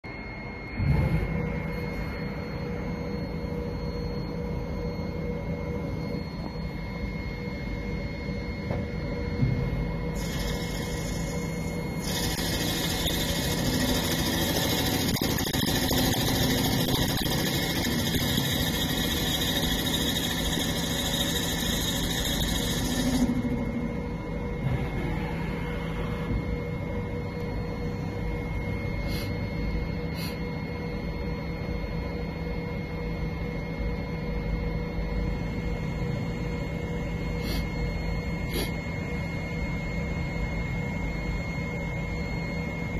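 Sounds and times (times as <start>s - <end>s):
lathe humming with high whine: 0.0s - 42.9s
cutting tool hiss: 10.2s - 15.6s, 38.5s - 38.8s.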